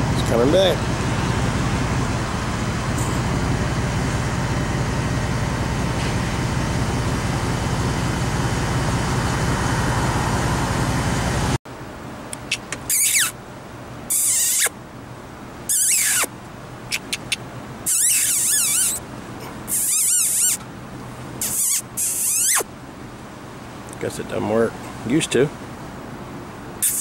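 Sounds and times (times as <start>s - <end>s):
eagle calls: 15.7s - 16.3s, 16.9s - 19.0s, 21.4s - 22.7s.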